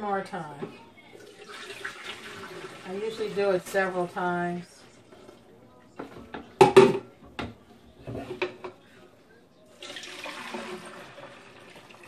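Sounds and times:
juice pouring through strainer: 0:01.2 - 0:02.9, 0:09.8 - 0:12.0.

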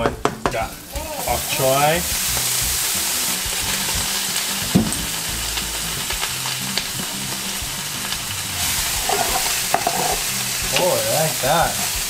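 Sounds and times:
vegetables sizzling in oil: 0:00.5 - 0:12.0
spoon knocking against pan: 0:09.1 - 0:10.2.

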